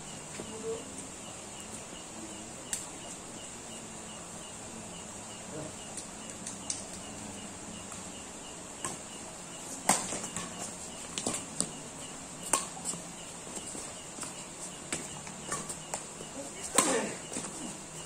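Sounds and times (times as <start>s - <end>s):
insects chirping: 0.0s - 18.0s
rackets striking shuttlecock: 9.8s - 11.7s, 12.4s - 13.0s, 14.9s - 17.6s.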